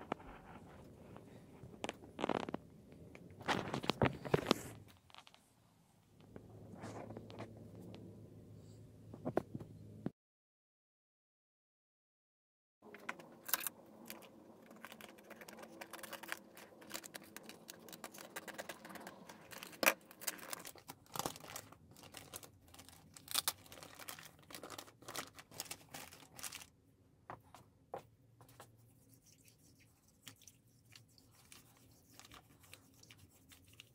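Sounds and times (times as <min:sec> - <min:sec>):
plastic bin bag crinkling: 0:01.8 - 0:02.6, 0:03.4 - 0:05.3, 0:13.4 - 0:26.7.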